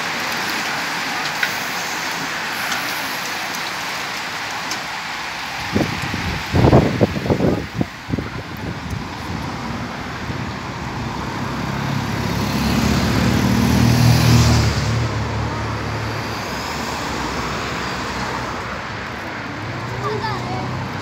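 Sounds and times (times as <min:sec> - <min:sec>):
road noise hiss: 0:00.0 - 0:21.0
motor vehicle passing by: 0:09.3 - 0:21.0.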